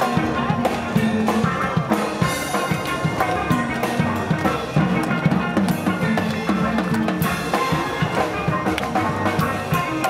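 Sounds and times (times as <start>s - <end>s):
drums keeping steady beat: 0.0s - 10.0s.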